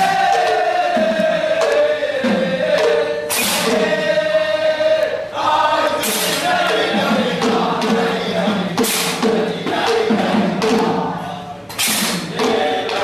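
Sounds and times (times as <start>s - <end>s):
drum strokes: 0.0s - 13.0s
men singing together: 0.0s - 13.0s
bright cymbal crashes: 3.2s - 3.9s.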